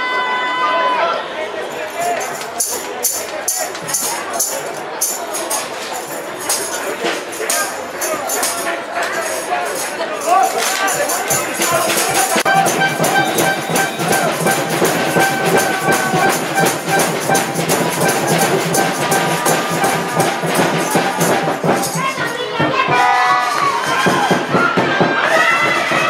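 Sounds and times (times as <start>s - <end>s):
crowd shouting: 0.0s - 26.0s
fast rattling percussion: 1.9s - 26.0s
brass horns: 11.6s - 21.9s.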